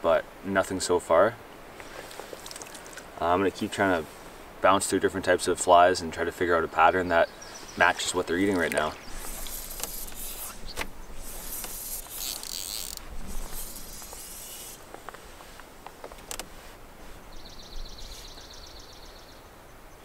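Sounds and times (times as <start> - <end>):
fly line swishing: 7.7 - 15.7
rapid high reel trill: 11.2 - 14.8.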